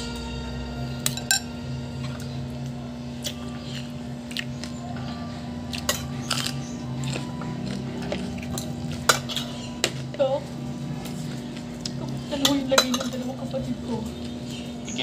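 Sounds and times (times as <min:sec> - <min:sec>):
steady low hum: 0:00.0 - 0:15.0
dishes clinking: 0:01.1 - 0:01.6, 0:12.4 - 0:13.3.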